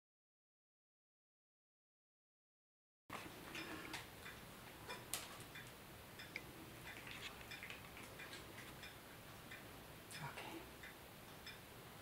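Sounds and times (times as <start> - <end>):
cat crunching a dry treat: 6.8 - 8.7.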